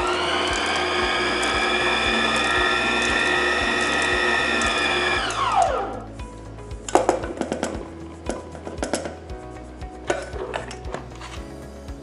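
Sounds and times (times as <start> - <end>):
stand mixer motor whining: 0.0 - 6.1.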